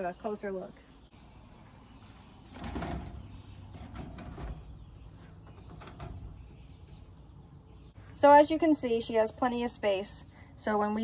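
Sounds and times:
hutch door scraping and rattling: 0:02.4 - 0:07.1.

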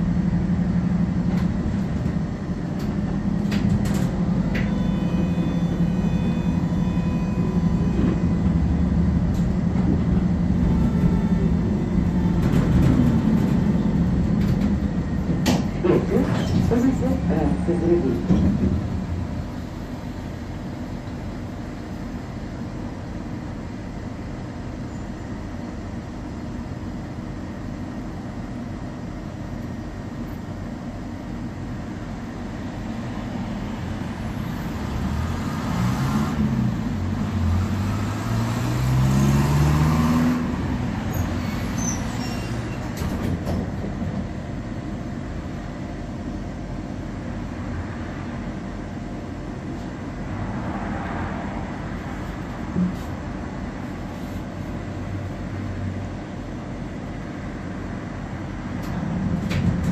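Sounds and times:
tram interior hum: 0:00.0 - 0:59.9
vehicle engine accelerating past: 0:37.5 - 0:40.6.

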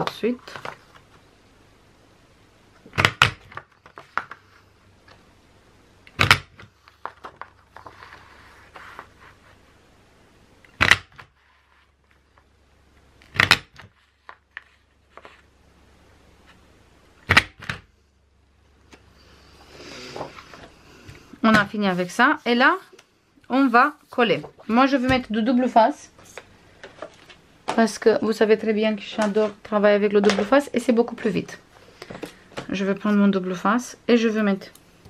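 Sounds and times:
paper punch snapping: 0:02.9 - 0:03.6, 0:06.1 - 0:06.7, 0:10.7 - 0:11.3, 0:13.3 - 0:13.8.

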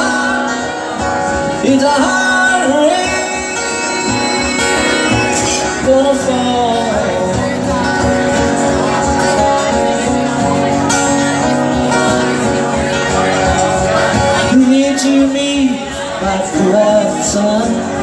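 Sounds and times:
acoustic guitar strummed: 0:00.0 - 0:18.0
man singing: 0:01.5 - 0:03.8, 0:05.3 - 0:07.7, 0:14.4 - 0:18.0.

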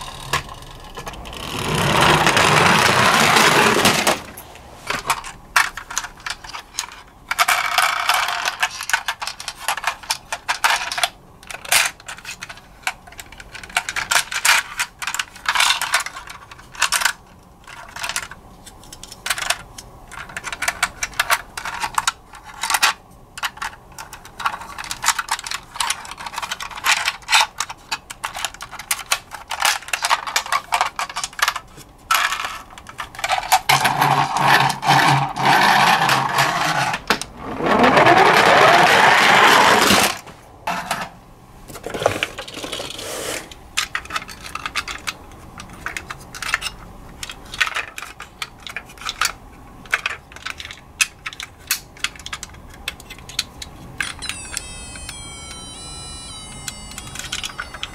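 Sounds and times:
toy car rolling down ramp: 0:00.0 - 0:04.3, 0:33.2 - 0:40.2, 0:54.0 - 0:57.9
plastic toy clicking and rattling: 0:05.1 - 0:37.2, 0:43.8 - 0:57.9.

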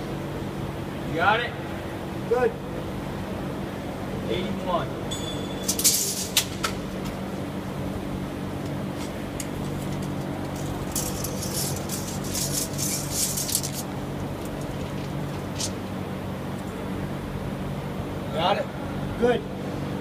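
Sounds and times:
steady machine hum: 0:00.0 - 0:20.0
high-pitched rustling and clinking: 0:05.1 - 0:06.6, 0:09.6 - 0:15.8.

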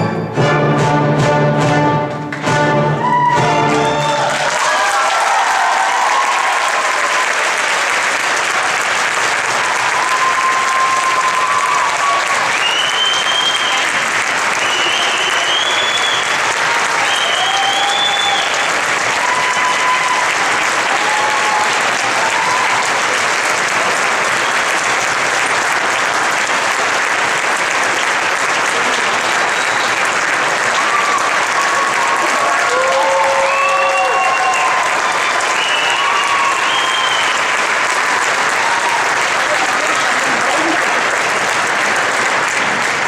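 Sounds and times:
audience applauding: 0:02.1 - 0:43.0
cheers and whoops: 0:03.0 - 0:07.9, 0:09.5 - 0:23.3, 0:30.6 - 0:40.8.

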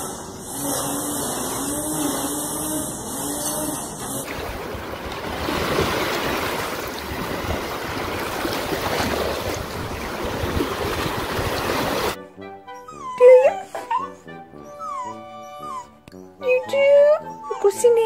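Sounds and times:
waves washing over shallow water: 0:04.2 - 0:12.2
wind rumbling on microphone: 0:04.3 - 0:12.2.

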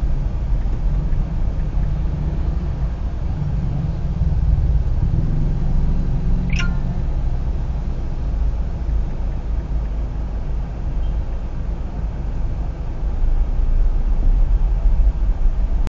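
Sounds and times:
street traffic noise: 0:00.0 - 0:15.9.

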